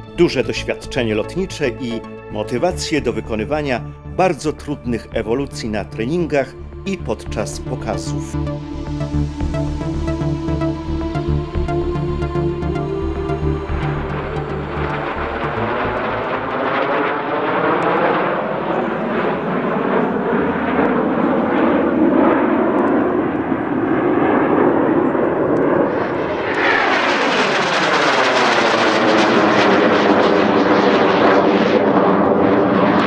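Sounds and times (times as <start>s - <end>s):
jet engines running: 6.4s - 33.0s
jet passing with swoosh: 13.8s - 33.0s.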